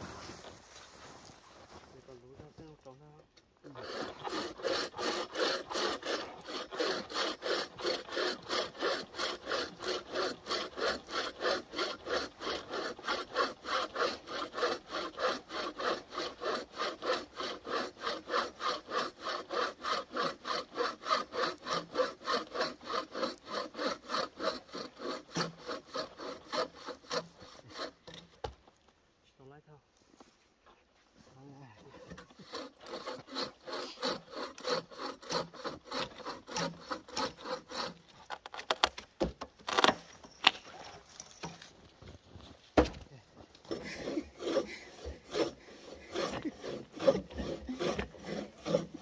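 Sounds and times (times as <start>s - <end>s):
hand saw cutting wood: 3.6s - 28.4s, 31.9s - 40.6s, 43.6s - 49.0s.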